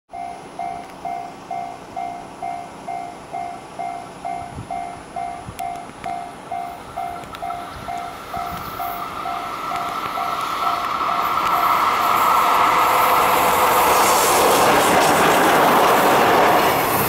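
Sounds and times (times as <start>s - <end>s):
level crossing alarm clanging: 0.1s - 11.8s
freight train rumbling: 0.1s - 17.0s.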